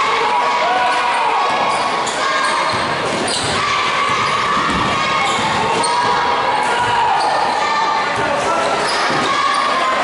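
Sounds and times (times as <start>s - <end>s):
crowd voices echoing: 0.0s - 10.0s
shoe squeaks on court: 1.7s - 3.6s, 8.6s - 9.8s.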